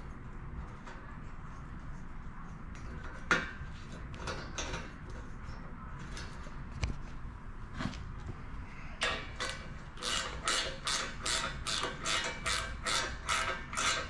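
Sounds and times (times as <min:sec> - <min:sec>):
ratcheting wrench clicking: 0:09.0 - 0:14.0.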